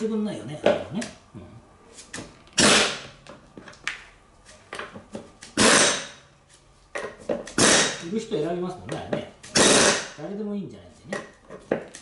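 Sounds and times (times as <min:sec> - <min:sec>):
air impact wrench: 0:02.6 - 0:03.1, 0:05.6 - 0:06.2, 0:07.6 - 0:08.0, 0:09.5 - 0:10.2.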